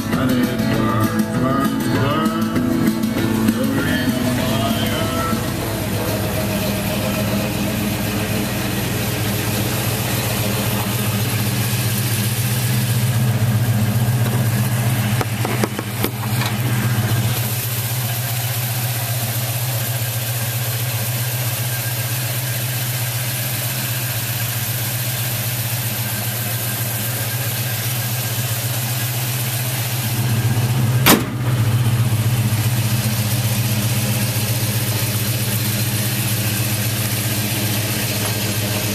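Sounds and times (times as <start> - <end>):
truck engine idling: 0.0 - 38.9
sharp knock: 31.0 - 31.6.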